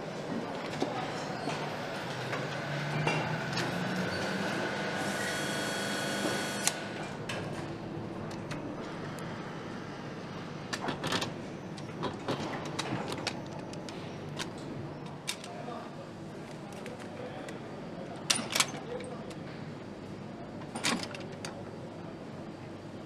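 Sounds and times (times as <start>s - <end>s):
steady machine hum: 1.5s - 12.0s
clicks and clacks of parts and tools: 10.7s - 15.6s, 18.2s - 19.6s, 20.6s - 21.7s.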